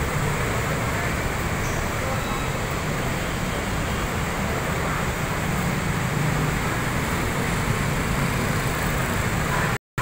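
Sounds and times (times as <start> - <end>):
road traffic: 0.0 - 10.0
motorcycles driving past: 4.2 - 9.8.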